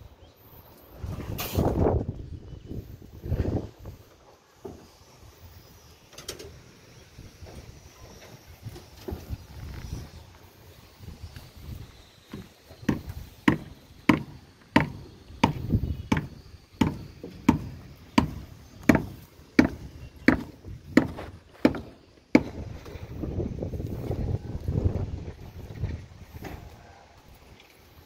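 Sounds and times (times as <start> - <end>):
sharp knocks: 12.8 - 22.6.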